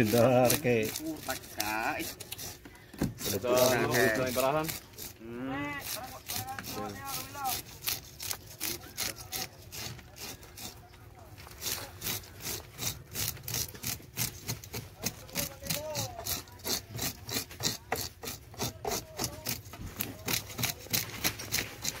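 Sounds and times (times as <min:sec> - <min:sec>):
fish scaler rasping scales: 0:00.0 - 0:22.0.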